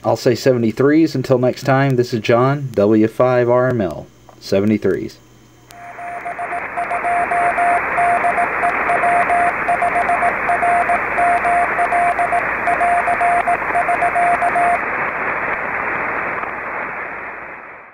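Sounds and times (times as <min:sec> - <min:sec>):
radio receiver hiss: 0:00.0 - 0:17.9
morse code tone: 0:05.8 - 0:14.8.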